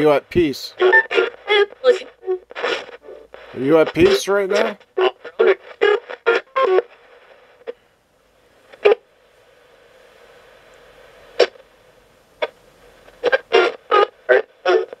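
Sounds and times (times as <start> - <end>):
radio broadcast snippets: 0.0 - 7.7, 13.1 - 15.0
faint radio hiss: 0.0 - 15.0.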